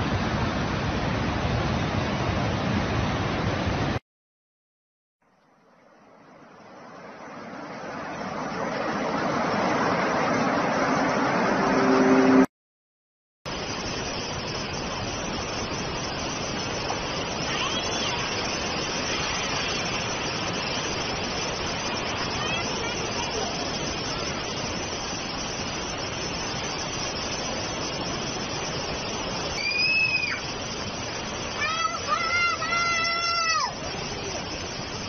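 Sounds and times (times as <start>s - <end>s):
floodwater rushing: 5.9s - 12.5s, 13.5s - 35.0s
low steady tone: 10.9s - 12.5s.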